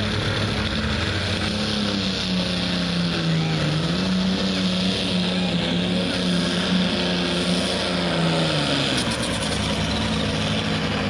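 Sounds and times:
diesel tractor engine at full throttle: 0:00.0 - 0:11.0.

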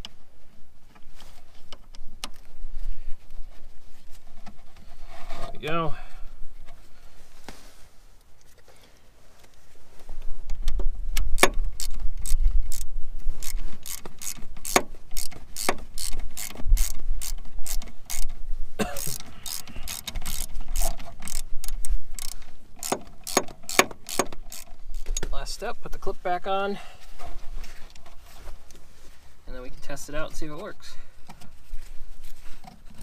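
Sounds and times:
ratchet clicking: 0:11.2 - 0:18.3, 0:19.0 - 0:25.3.

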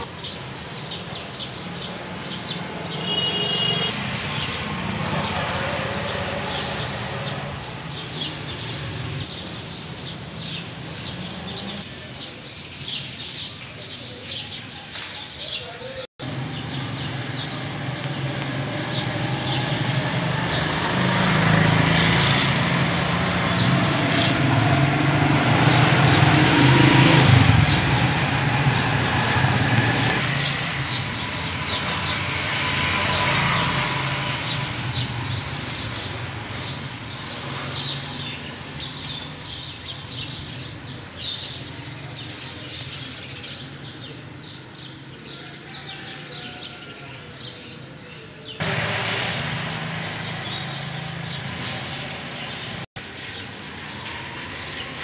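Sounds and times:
vehicle engine passing by: 0:03.9 - 0:11.9, 0:16.2 - 0:40.4, 0:48.6 - 0:55.0.

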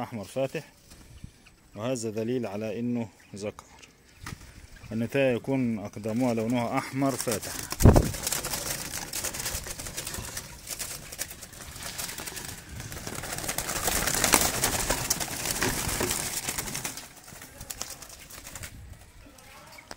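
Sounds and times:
doves cooing: 0:03.9 - 0:19.4
rustling: 0:05.9 - 0:19.9.

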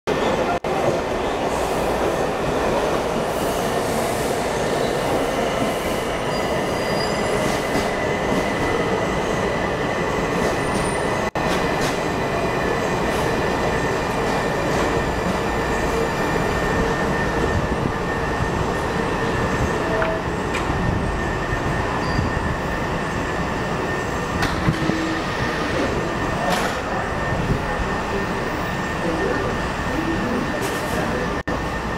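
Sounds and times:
train wheels rumbling on rail: 0:00.1 - 0:31.9
high wheel squeal: 0:05.7 - 0:07.6, 0:21.6 - 0:23.2.

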